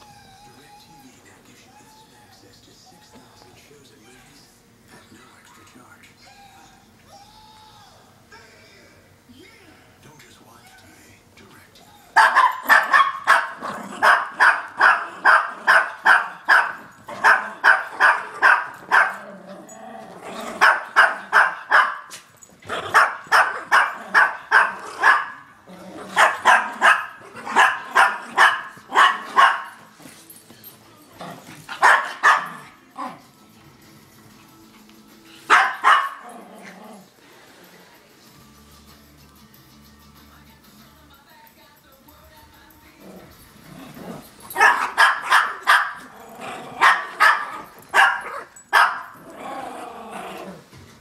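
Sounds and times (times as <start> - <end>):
small dog yapping: 12.2 - 19.3, 20.5 - 25.4, 26.1 - 29.8.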